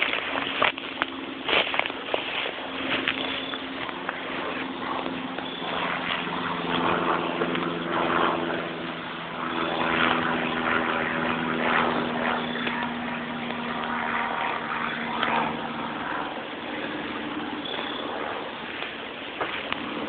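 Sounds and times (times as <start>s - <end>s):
motor engine droning: 0.0s - 20.0s.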